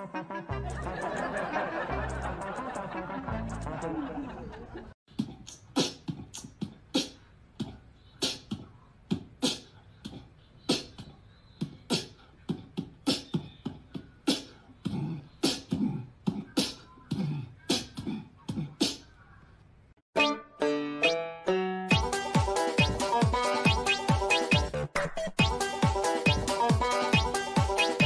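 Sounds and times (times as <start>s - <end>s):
sharp clicking percussive beat: 21.9s - 24.8s.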